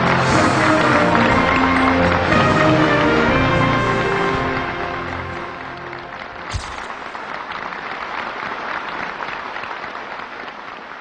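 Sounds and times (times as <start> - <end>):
music track: 0.0 - 6.6
audience applauding: 0.0 - 11.0
short thump: 6.5 - 7.0.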